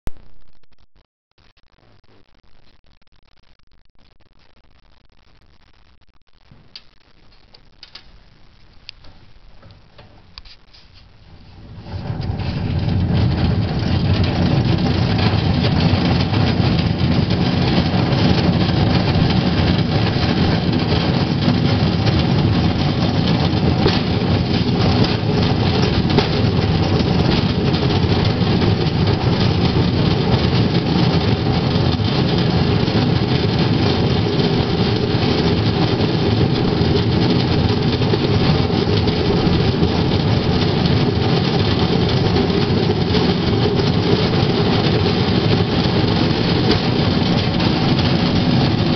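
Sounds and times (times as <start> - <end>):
rail bike wheels rumbling: 11.1 - 48.9.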